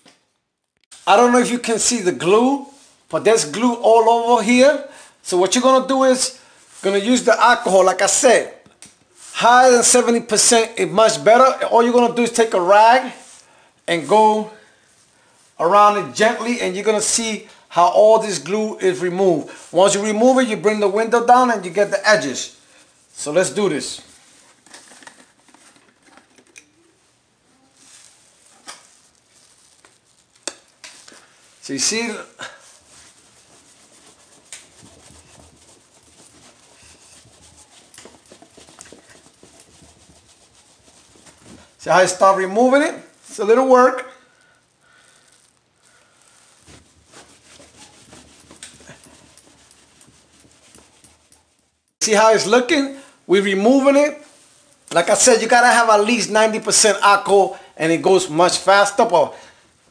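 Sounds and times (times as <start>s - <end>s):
rag rubbing on window glass: 31.6s - 43.2s, 46.4s - 51.8s.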